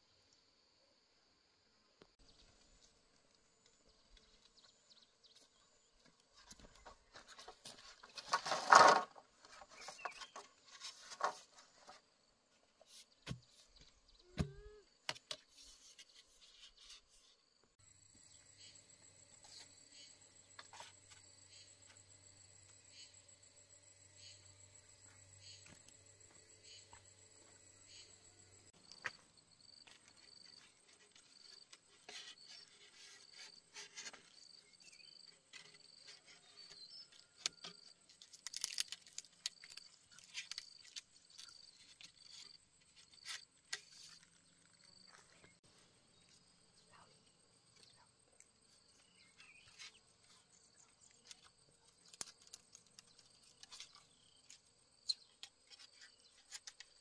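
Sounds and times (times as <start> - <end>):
insects chirping: 17.8 - 57.0.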